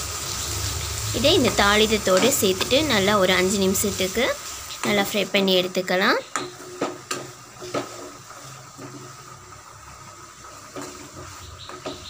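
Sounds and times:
food sizzling: 0.0 - 12.0
spoon scraping metal pan: 6.3 - 9.2, 10.6 - 12.0.

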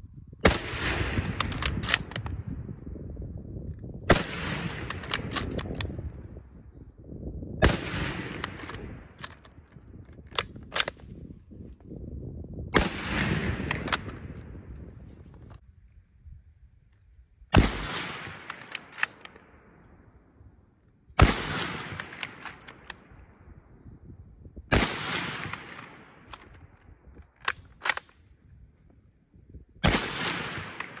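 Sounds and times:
rifle shots with echo: 0.4 - 2.4, 4.1 - 6.0, 7.6 - 9.3, 12.7 - 14.7, 17.5 - 20.1, 21.2 - 23.5, 24.7 - 26.7, 29.8 - 31.0
rifle bolt clicks: 1.3 - 2.4, 4.6 - 6.0, 8.3 - 11.1, 13.6 - 14.2, 18.2 - 19.6, 21.6 - 23.2, 25.4 - 28.3, 29.9 - 31.0.

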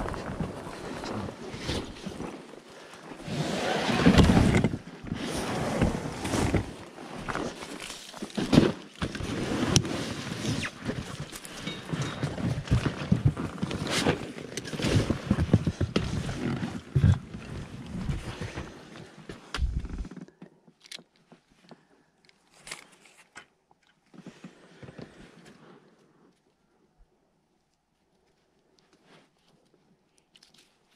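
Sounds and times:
inflatable boat rustling: 0.0 - 20.1.

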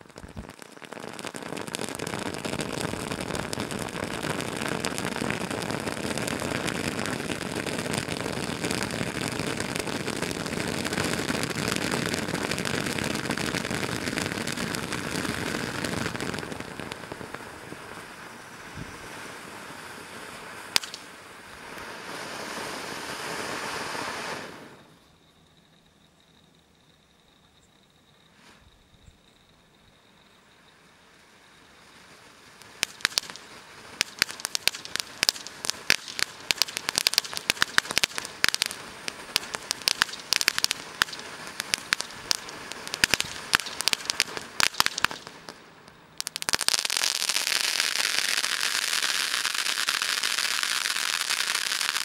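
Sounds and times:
firework fountain crackling hiss: 0.0 - 25.2, 30.0 - 52.0
sharp firework pop: 20.8 - 21.1, 32.8 - 38.8, 39.4 - 45.6.

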